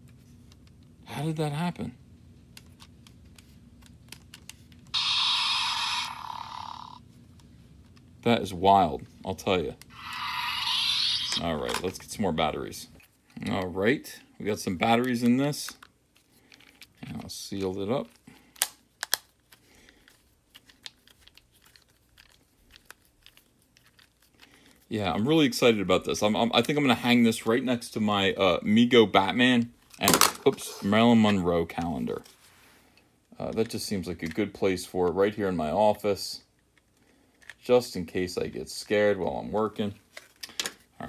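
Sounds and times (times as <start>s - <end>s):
electronic hiss and buzz: 4.9s - 7.0s, 9.9s - 11.5s.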